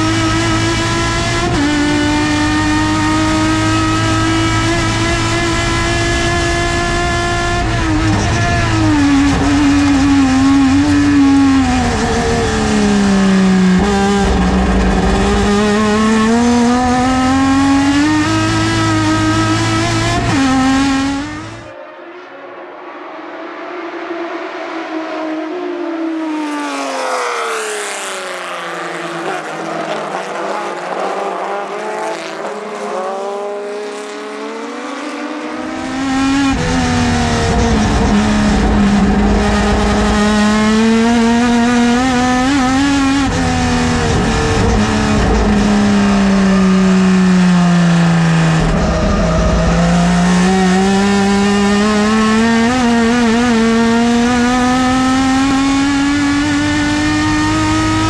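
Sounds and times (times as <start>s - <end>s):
race car engines passing: 0.0s - 58.0s
loud deep engine inside car: 35.9s - 58.0s.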